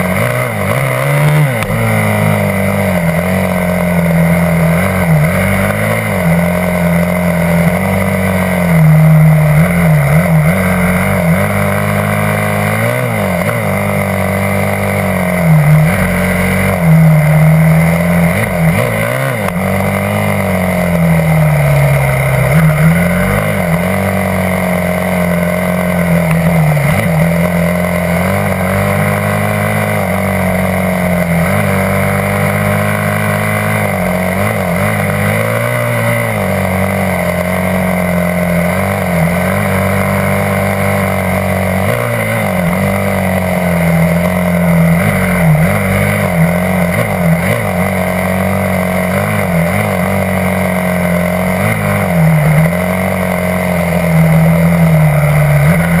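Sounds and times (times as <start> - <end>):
dirt bike engine running: 0.0 - 56.0.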